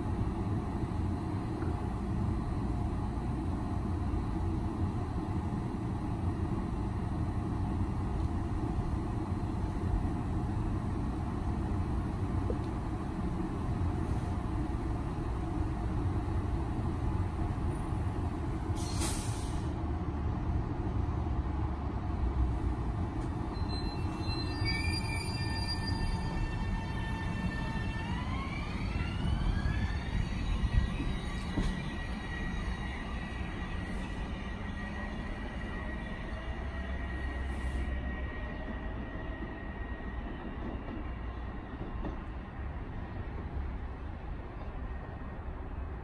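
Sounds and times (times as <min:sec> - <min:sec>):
train low rumble and hum: 0:00.0 - 0:46.0
air hiss: 0:18.8 - 0:19.8.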